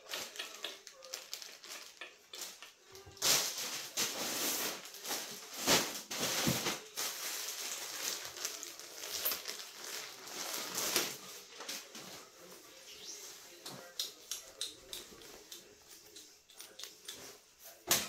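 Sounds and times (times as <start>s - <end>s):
plastic bags crinkling: 0.0s - 12.3s.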